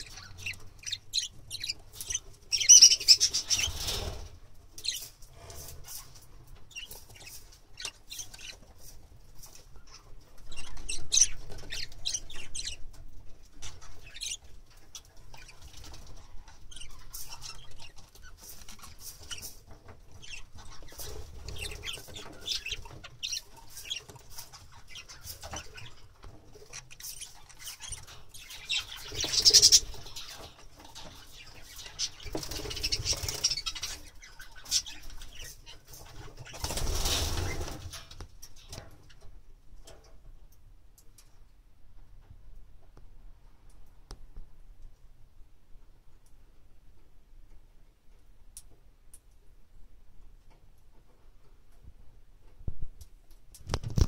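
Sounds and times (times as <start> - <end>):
budgerigars chirping and chattering: 0.0 - 38.0.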